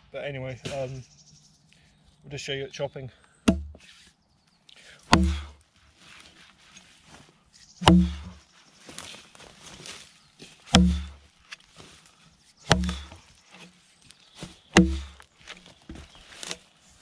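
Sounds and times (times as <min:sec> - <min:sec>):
axe chopping into log: 0:03.5 - 0:03.8, 0:05.1 - 0:05.6, 0:07.8 - 0:08.4, 0:10.7 - 0:11.2, 0:12.7 - 0:13.7, 0:14.7 - 0:15.2.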